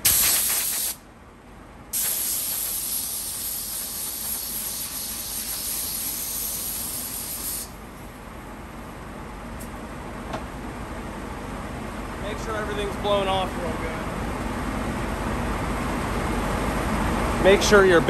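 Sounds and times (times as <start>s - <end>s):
compressed air blow gun hissing: 0.0s - 1.0s, 1.9s - 7.8s.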